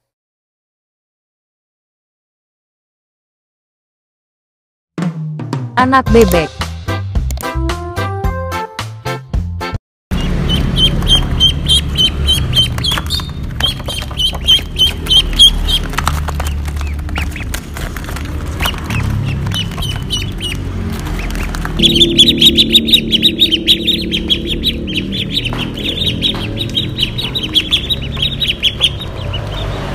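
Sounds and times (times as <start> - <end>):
ducklings peeping: 10.1 - 29.9
low rumble: 19.0 - 29.9.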